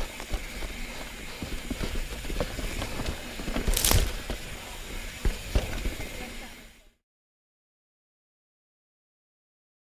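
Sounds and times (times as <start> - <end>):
bike knocking and rattling: 0.0 - 6.3
bike tyres on dirt trail: 0.0 - 7.0.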